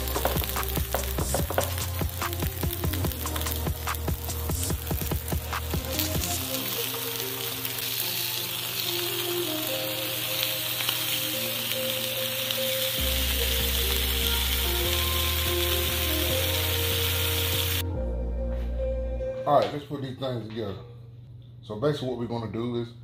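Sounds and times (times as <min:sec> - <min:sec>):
background music with deep bass: 0:00.0 - 0:10.7, 0:11.3 - 0:19.8
patties sizzling on a griddle: 0:00.0 - 0:17.8.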